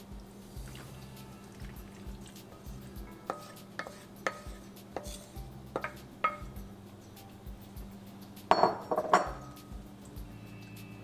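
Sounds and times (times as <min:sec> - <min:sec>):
wooden spoon tapping a bowl: 0:05.8 - 0:06.6
dishware clatter: 0:08.5 - 0:09.6.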